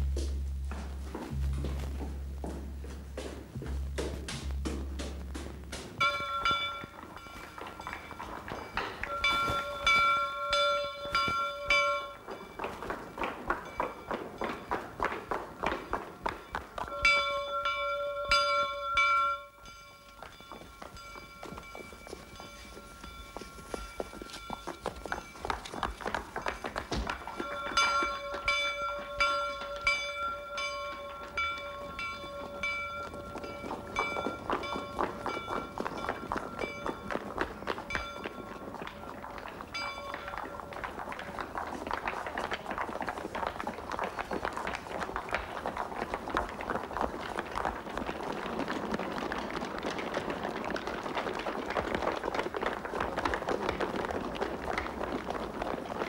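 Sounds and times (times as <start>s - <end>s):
large bell ringing: 0.0s - 41.8s
running footsteps: 0.0s - 56.0s.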